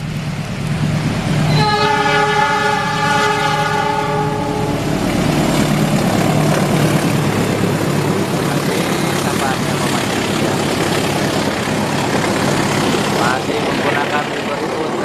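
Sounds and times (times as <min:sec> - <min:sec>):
locomotive diesel engine drone: 0:00.0 - 0:15.0
locomotive horn blast: 0:01.5 - 0:05.0.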